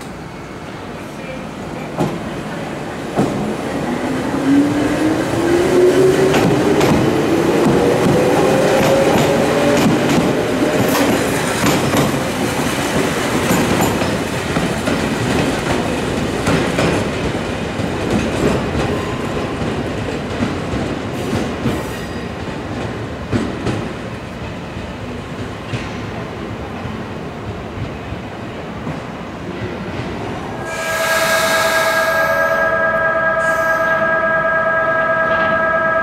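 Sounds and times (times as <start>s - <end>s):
train wheels clicking over rail joints: 6.2s - 24.0s.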